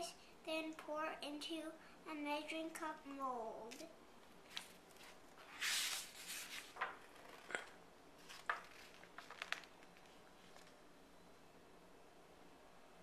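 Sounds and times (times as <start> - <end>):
book page turning: 4.5 - 10.8.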